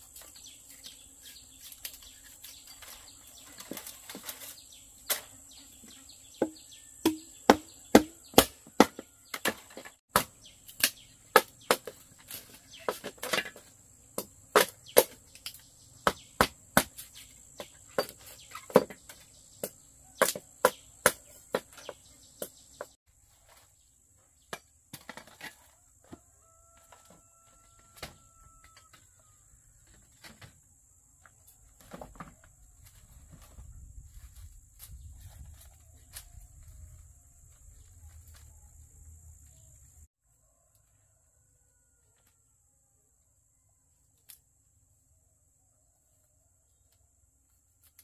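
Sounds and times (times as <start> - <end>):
sharp chopping strikes: 6.4 - 12.0.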